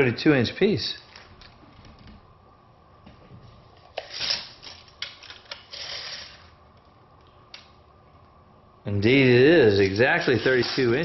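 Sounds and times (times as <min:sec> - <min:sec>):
handling rubbing and rustling: 0:03.2 - 0:06.6, 0:09.7 - 0:11.0.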